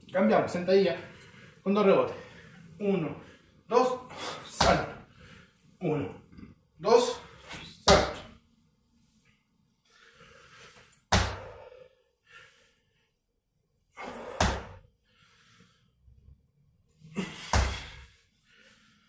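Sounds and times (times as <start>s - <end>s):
sneakers thudding on hard floor: 11.1s - 11.6s, 17.4s - 18.0s.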